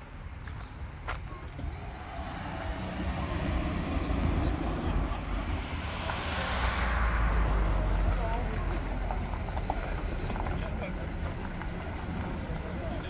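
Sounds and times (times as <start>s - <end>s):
crunching footsteps: 0.0s - 3.4s
car engine running: 1.5s - 13.0s.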